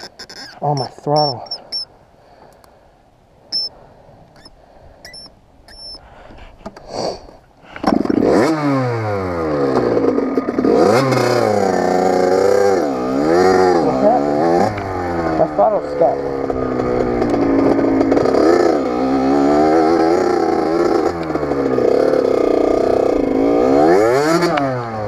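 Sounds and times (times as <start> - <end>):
faint clicks: 2.4 - 2.7
dirt bike engine revving: 7.9 - 25.0.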